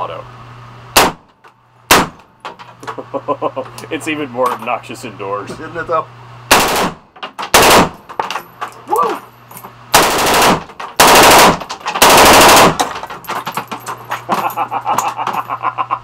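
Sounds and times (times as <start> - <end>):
automatic rifle bursts indoors: 6.5 - 8.1, 9.9 - 13.1.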